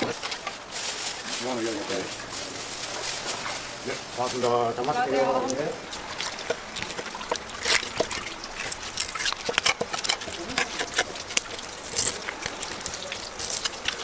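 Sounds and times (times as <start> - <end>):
knife scraping cutting board: 6.8 - 12.3.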